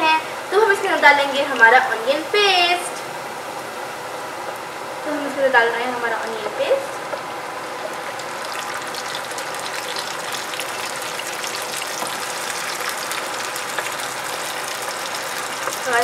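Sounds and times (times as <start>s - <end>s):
onions sizzling in hot oil: 3.9s - 16.0s.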